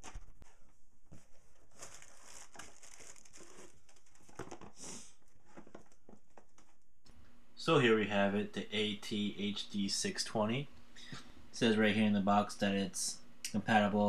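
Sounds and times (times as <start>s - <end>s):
plastic packing crinkling: 1.6s - 4.8s.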